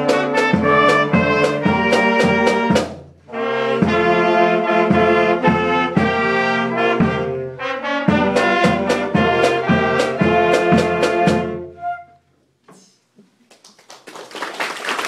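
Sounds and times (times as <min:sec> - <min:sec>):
drum hits: 0:00.0 - 0:03.1, 0:03.8 - 0:04.2, 0:08.1 - 0:11.6
band playing: 0:00.0 - 0:12.0
applause: 0:13.5 - 0:15.0.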